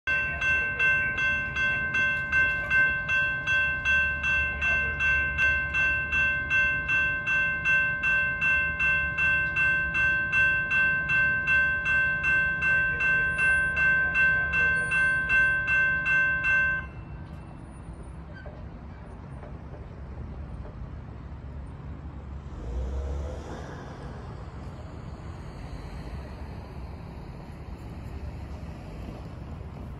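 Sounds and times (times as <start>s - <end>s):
railroad crossing bell ringing: 0.1s - 18.4s.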